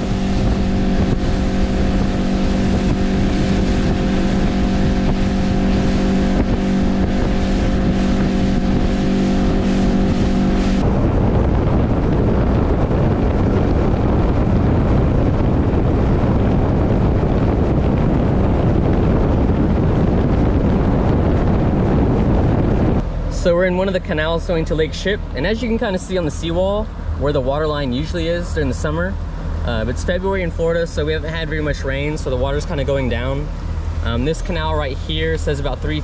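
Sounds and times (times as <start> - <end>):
outboard motor drone: 0.0 - 36.0
rushing water: 0.0 - 36.0
wind: 0.0 - 36.0.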